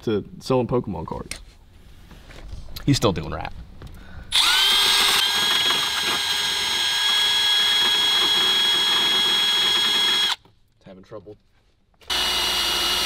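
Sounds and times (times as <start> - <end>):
rotary tool whining: 4.3 - 10.4, 12.0 - 13.0.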